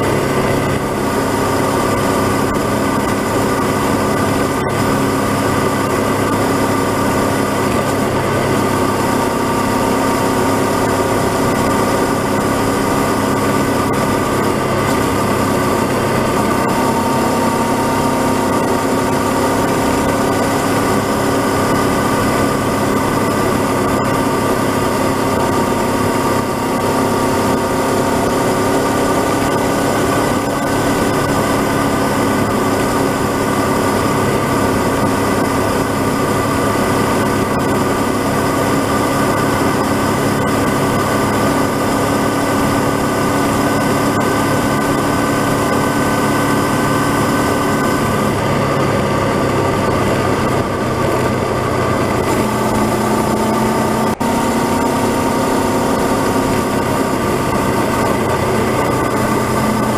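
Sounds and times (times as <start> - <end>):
motorcycle engine cruising: 0.0 - 59.9
wind and road noise: 0.0 - 59.9.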